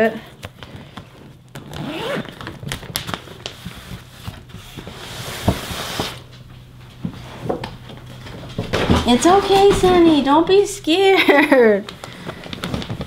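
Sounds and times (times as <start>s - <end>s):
packaging and fabric rustling: 0.4s - 6.2s, 11.3s - 13.0s.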